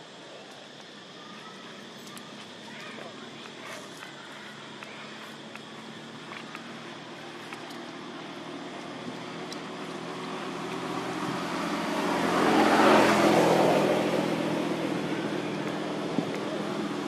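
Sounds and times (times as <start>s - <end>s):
vehicle passing by: 7.9s - 17.0s.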